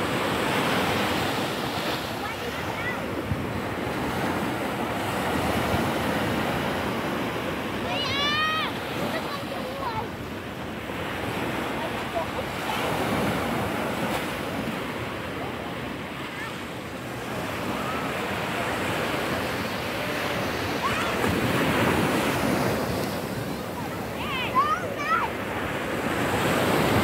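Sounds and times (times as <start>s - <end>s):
surf washing over sand: 0.0s - 27.0s
wind buffeting microphone: 2.7s - 8.0s.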